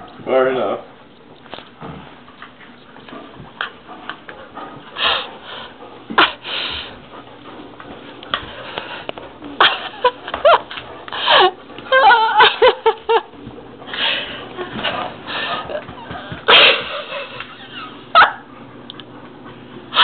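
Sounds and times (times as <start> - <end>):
person laughing wheezily: 11.2 - 13.3, 15.3 - 18.4.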